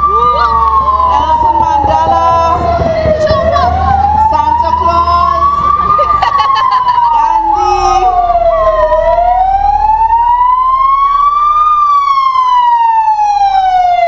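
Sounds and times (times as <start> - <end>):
fire engine siren wailing: 0.0 - 14.0.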